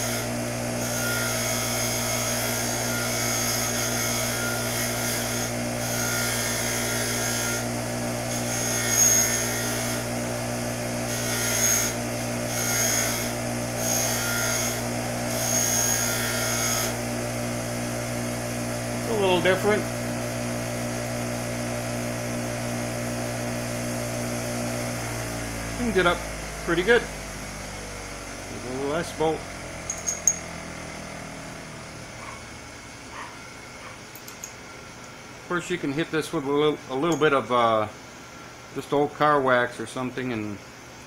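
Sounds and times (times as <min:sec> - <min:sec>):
metal scraping on grinding wheel: 0:00.0 - 0:17.8, 0:28.5 - 0:30.8
bench grinder motor running: 0:00.0 - 0:34.8.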